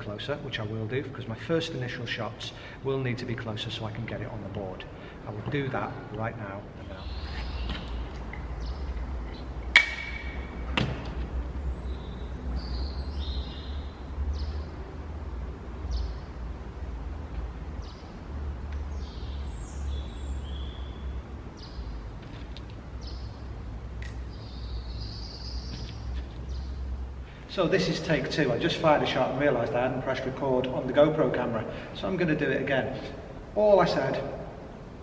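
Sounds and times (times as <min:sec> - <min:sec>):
small birds chirping: 0:05.8 - 0:10.4, 0:11.4 - 0:14.9, 0:15.7 - 0:16.6, 0:17.4 - 0:29.5.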